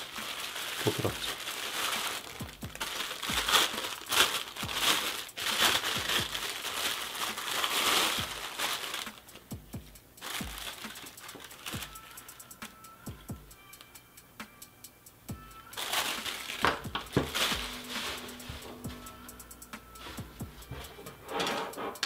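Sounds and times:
plastic bag crinkling: 0.0 - 9.5, 10.2 - 12.3, 15.8 - 19.0.

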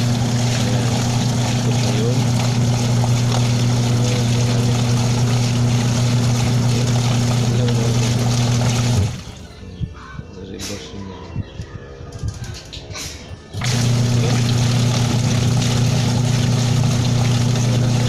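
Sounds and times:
washing machine motor humming: 0.0 - 9.5, 13.5 - 18.0.

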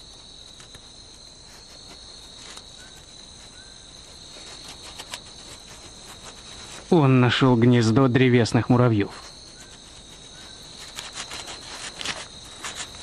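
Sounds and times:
night insects chorus: 0.0 - 13.0.

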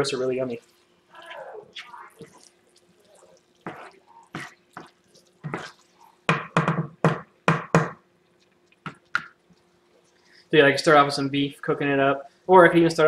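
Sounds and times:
spoon knocking and scraping pan: 3.6 - 8.0.

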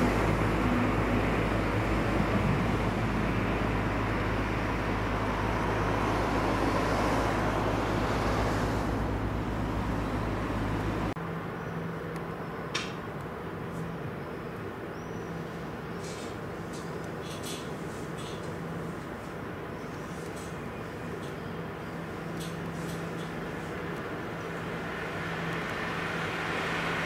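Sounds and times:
engine humming and rushing: 0.0 - 27.0.

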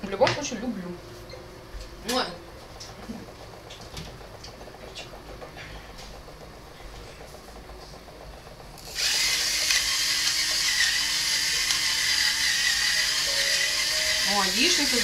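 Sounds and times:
loud whirring hiss: 8.7 - 15.0.

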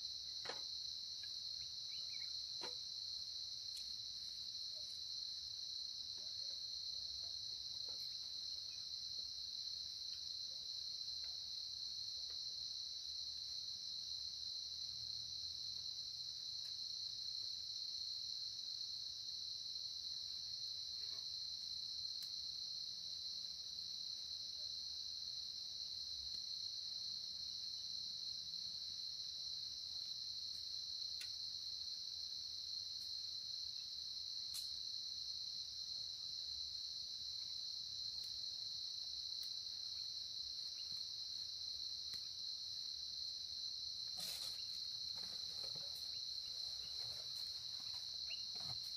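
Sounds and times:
insect chorus: 0.0 - 48.9
faint ticks: 30.4 - 31.4, 34.5 - 34.8.

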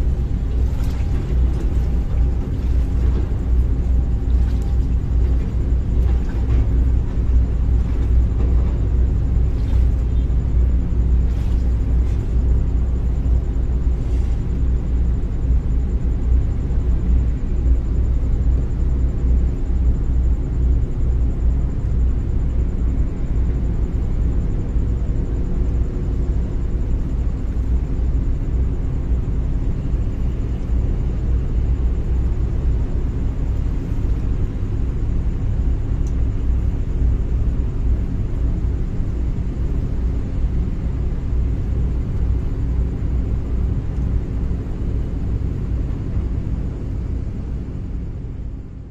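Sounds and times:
boat engine rumbling: 0.0 - 48.8.

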